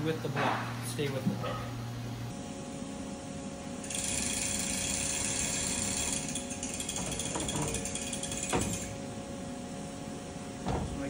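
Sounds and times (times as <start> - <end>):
rapid chain clicking: 3.8 - 8.9.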